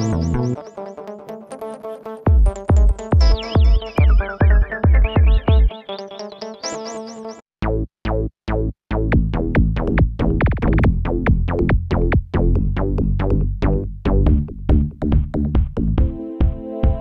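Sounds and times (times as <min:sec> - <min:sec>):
electronic dance music: 0:00.0 - 0:01.2, 0:01.9 - 0:07.4, 0:16.0 - 0:17.0.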